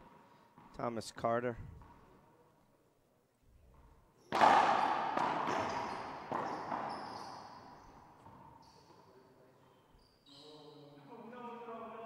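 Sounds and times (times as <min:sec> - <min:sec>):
ball hitting court walls: 0:03.7 - 0:08.6
racquet hitting ball: 0:03.7 - 0:08.7
sneaker squeaks on hardwood floor: 0:04.2 - 0:11.0.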